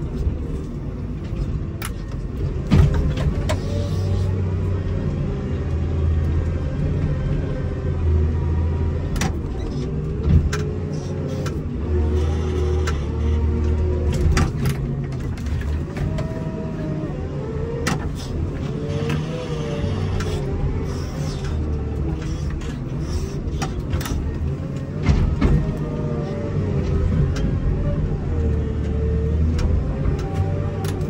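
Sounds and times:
diesel engine running under load: 0.0 - 31.0
knocks and rattles: 1.2 - 3.7, 21.3 - 26.1.

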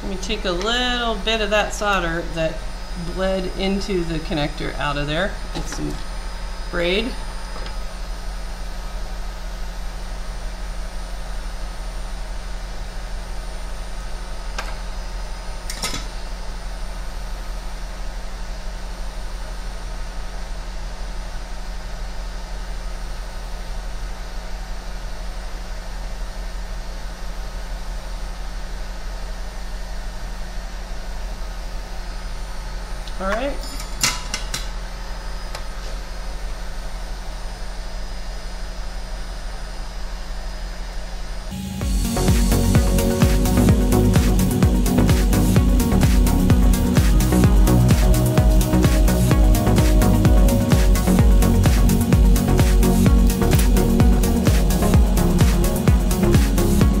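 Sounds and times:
low constant hum: 0.0 - 9.7
steady electric hum: 0.0 - 57.0.

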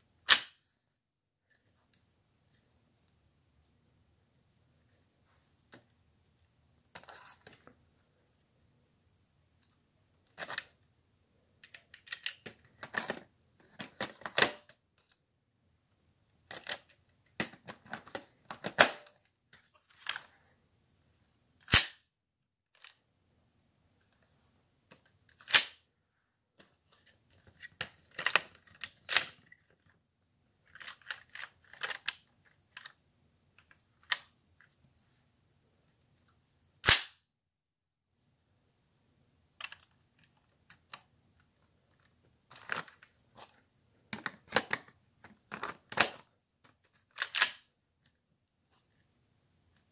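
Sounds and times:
sharp plastic snaps: 0.2 - 0.6, 21.6 - 22.1, 25.0 - 25.9, 36.8 - 37.2, 44.1 - 47.7.

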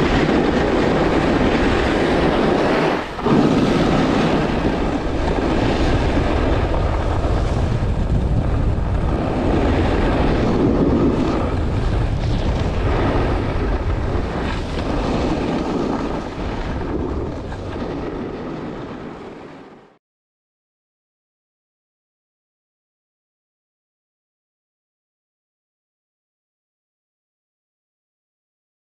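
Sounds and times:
snowboard scraping over snow: 0.0 - 19.9
wind buffeting microphone: 0.0 - 20.0.

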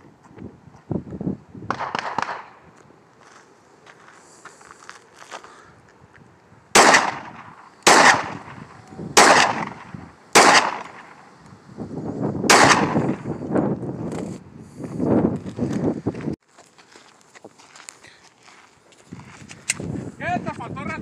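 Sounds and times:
gunshots with echo: 1.7 - 2.6, 6.8 - 11.2, 12.5 - 13.3.

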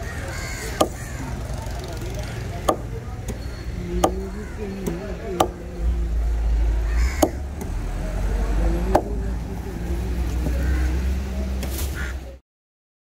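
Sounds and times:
knife chopping on wooden block: 0.8 - 1.0.

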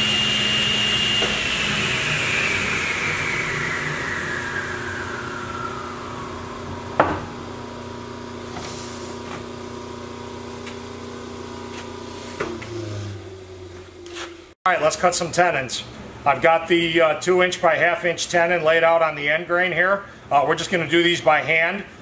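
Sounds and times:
table saw spinning down: 0.0 - 8.7, 9.6 - 14.1
steady low hum: 2.0 - 11.8.

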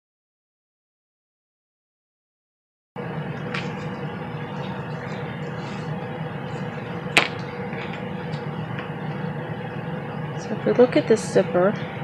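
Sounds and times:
background hum: 3.0 - 12.0.

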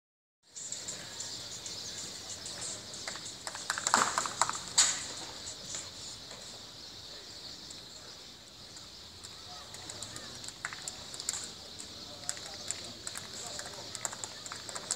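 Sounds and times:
steady high hiss: 0.5 - 12.4
crowd hand claps: 3.1 - 5.0, 9.5 - 14.9.

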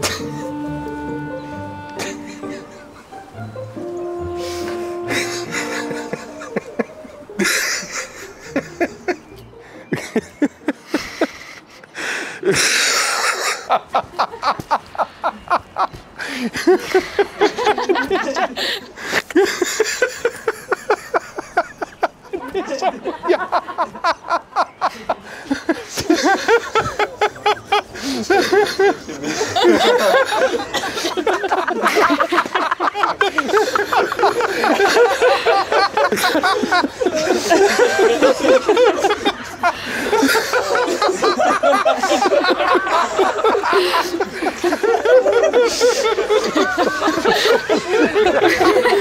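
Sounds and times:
person laughing: 0.0 - 0.6, 1.9 - 3.2, 4.4 - 9.2, 19.3 - 49.0
man's high wheezing laugh: 10.9 - 13.7, 33.4 - 49.0.

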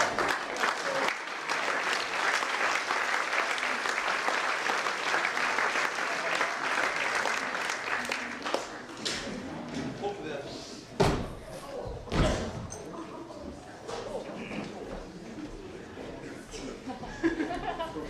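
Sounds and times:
audience applauding in a hall: 0.0 - 9.0.

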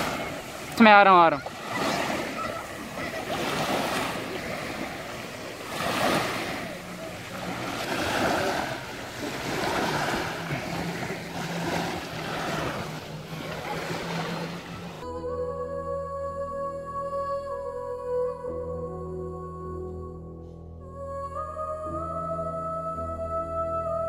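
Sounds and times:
small waves washing on shore: 0.0 - 15.0
music: 15.0 - 24.0.

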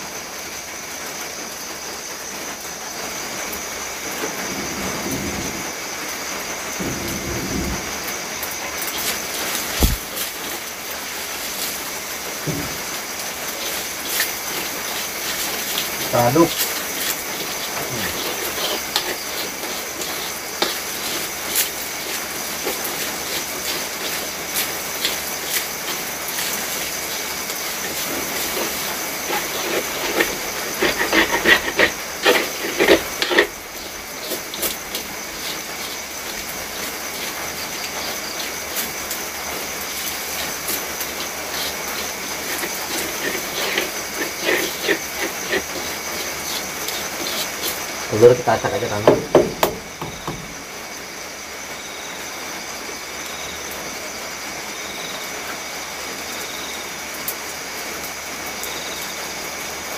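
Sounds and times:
food sizzling in a wok: 0.0 - 59.9
stirring scrapes against wok: 8.8 - 50.5.

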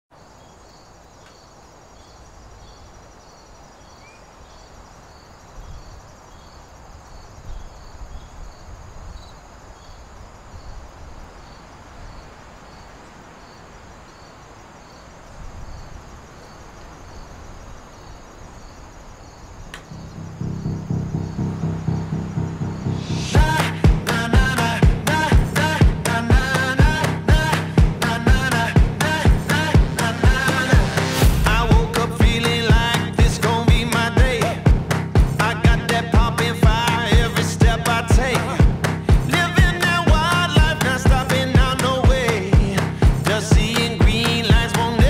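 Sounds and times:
crickets chirping: 0.1 - 45.0
high insect whine: 0.2 - 34.4
sharp click: 19.7 - 20.0
low outdoor rumble: 19.8 - 39.3.

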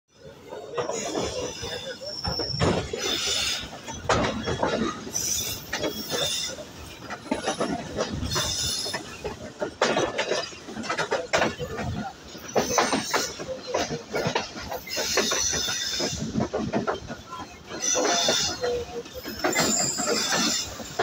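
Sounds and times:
train wheels rattling on track: 0.1 - 21.0
metallic squeals: 0.5 - 7.0, 17.6 - 21.0.

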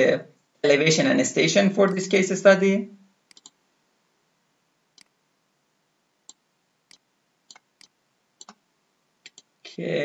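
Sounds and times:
faint computer mouse clicks: 3.3 - 3.6, 9.2 - 9.5.

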